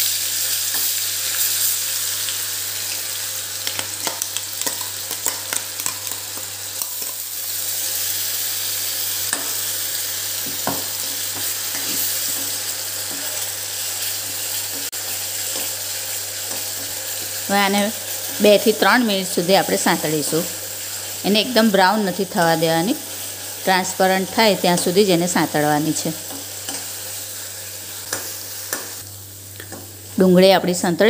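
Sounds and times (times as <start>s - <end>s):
paste sizzling in hot oil: 0.0s - 30.2s.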